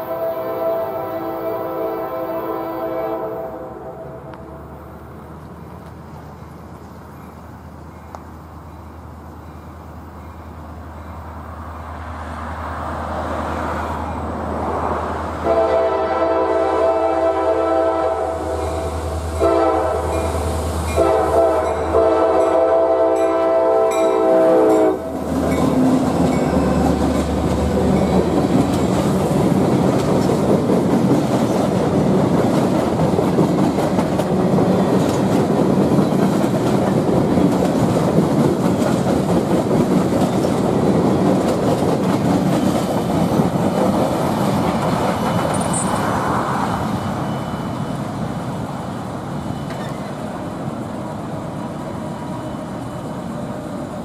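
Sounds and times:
locomotive air horn blasts: 0.0 - 4.7, 15.4 - 25.4
train rumbling: 0.0 - 54.0
train wheel clatter: 25.2 - 46.3, 49.4 - 50.4.

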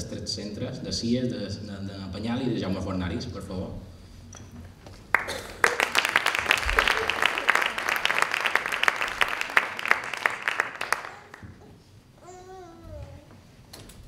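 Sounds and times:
audience applauding: 5.1 - 11.6.

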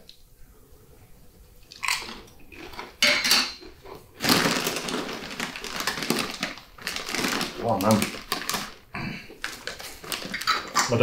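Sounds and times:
plastic packets crinkling: 1.7 - 3.0, 3.6 - 11.0.

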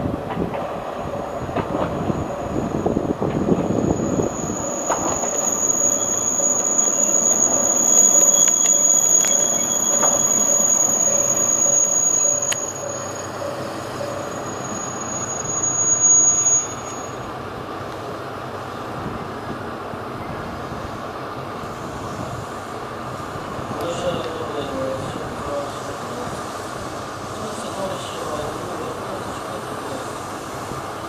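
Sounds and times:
railcar rumble: 0.0 - 31.0
train wheels squealing: 0.9 - 17.3.

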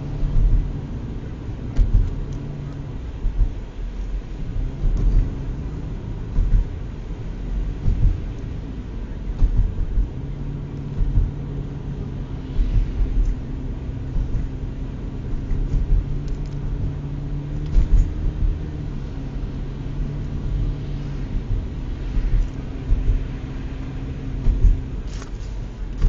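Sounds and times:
car engine hum: 0.0 - 26.0
low bumps: 0.0 - 26.0
tyres rumbling on snowy road: 0.0 - 26.0.

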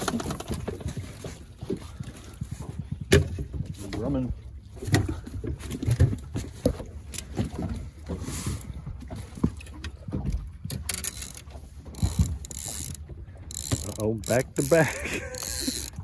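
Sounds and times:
knocks and thumps on boat deck: 0.0 - 11.0
wind and water rumble: 0.0 - 16.0.

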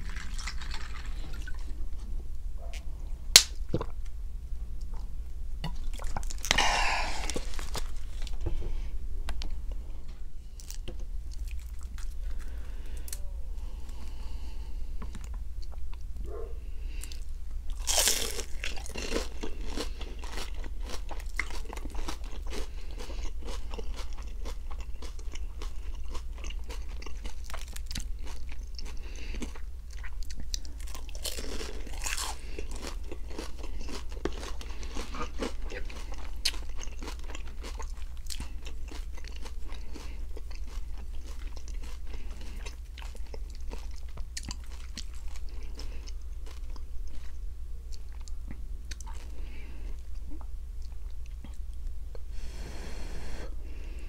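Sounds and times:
crunchy bites and chewing: 5.8 - 8.4, 10.5 - 13.2, 16.9 - 51.8.

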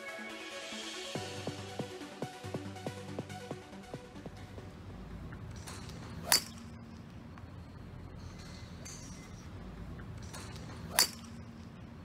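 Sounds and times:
low driving-range hum: 4.0 - 12.0
golf club striking ball: 5.5 - 7.0, 10.2 - 11.6.

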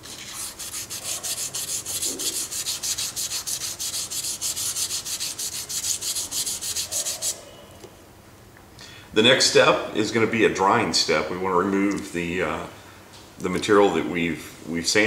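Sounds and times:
sandpaper rasping on metal: 0.0 - 7.4.

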